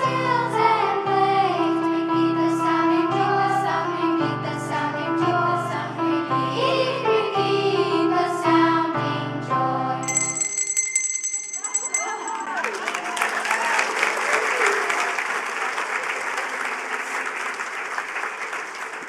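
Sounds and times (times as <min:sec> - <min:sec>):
children's choir singing: 0:00.0 - 0:10.0.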